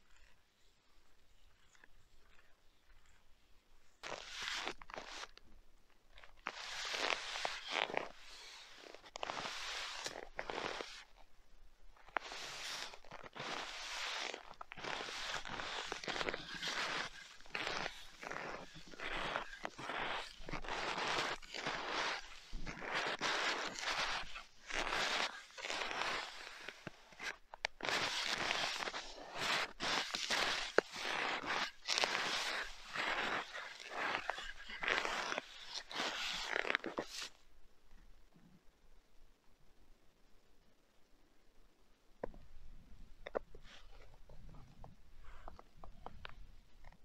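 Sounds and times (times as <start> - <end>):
footsteps crunching in snow: 4.0 - 5.4, 6.2 - 11.2, 12.0 - 37.4.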